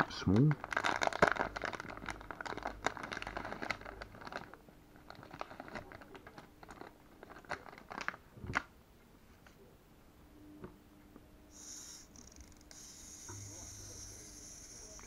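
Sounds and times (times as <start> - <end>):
plastic bag crinkling: 0.1 - 8.3.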